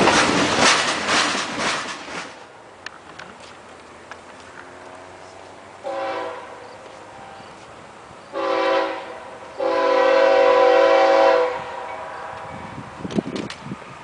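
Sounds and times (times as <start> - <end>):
locomotive air horn blasts: 5.8 - 7.5, 8.3 - 12.7.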